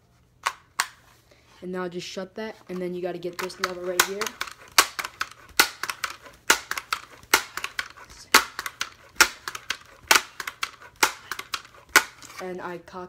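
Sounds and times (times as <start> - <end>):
air rifle pump clacks: 2.8 - 12.4.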